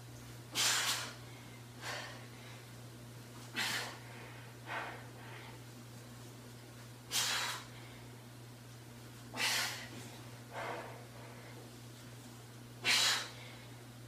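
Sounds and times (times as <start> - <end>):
woman breathing hard: 0.5 - 2.8, 3.5 - 5.6, 9.3 - 11.7, 12.8 - 13.8.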